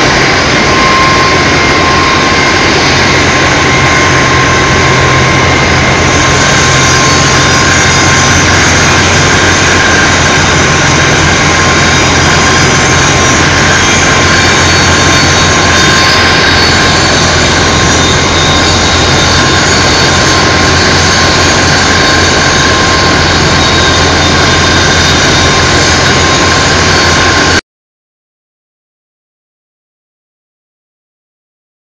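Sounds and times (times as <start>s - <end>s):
wire-drawing machine roaring: 0.0s - 27.6s.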